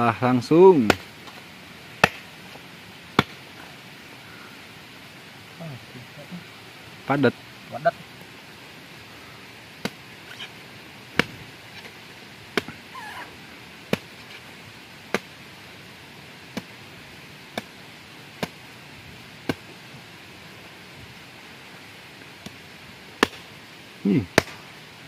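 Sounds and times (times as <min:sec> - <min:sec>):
machete chopping coconut: 0:00.8 - 0:01.1, 0:02.0 - 0:02.3, 0:03.2 - 0:03.4, 0:11.2 - 0:11.4, 0:13.9 - 0:14.1, 0:19.4 - 0:19.7, 0:23.2 - 0:23.4, 0:24.3 - 0:24.6.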